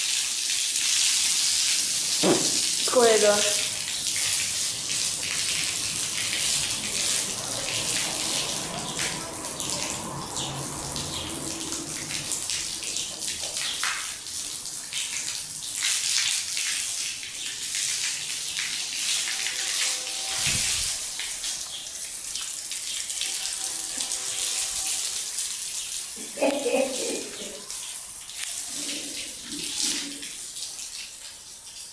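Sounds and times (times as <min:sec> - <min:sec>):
hose water spattering on tiles: 0:00.0 - 0:31.9
low thump: 0:02.2 - 0:02.7.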